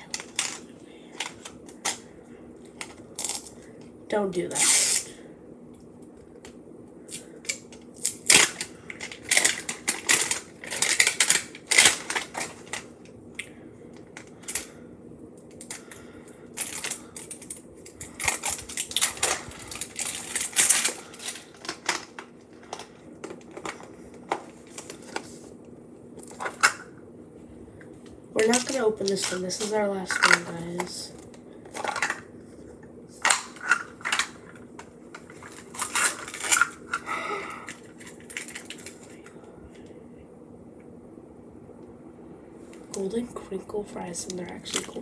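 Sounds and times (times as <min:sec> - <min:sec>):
plastic wrapping crinkling: 0:07.1 - 0:13.0, 0:15.6 - 0:25.6, 0:27.9 - 0:32.3, 0:33.2 - 0:39.3.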